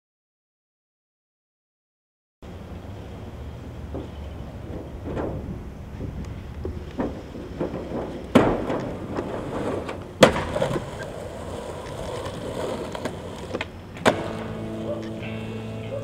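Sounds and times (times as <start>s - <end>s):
skateboard wheels rolling on concrete: 2.4s - 16.0s
skateboard clack: 3.8s - 16.0s
skateboard landing slam on concrete: 7.0s - 14.6s.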